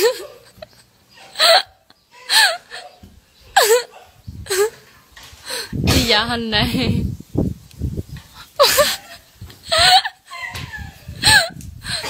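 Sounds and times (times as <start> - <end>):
woman's high-pitched cries: 0.0 - 4.8, 8.5 - 12.0.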